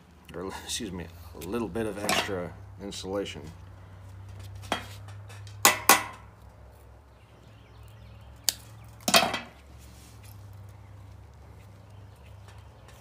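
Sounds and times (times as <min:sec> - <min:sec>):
hand tools clinking on metal: 0:02.0 - 0:02.5.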